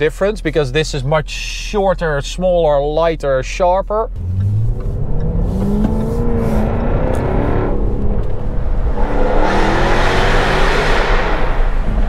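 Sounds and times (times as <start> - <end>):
car engine accelerating hard: 4.1 - 12.0.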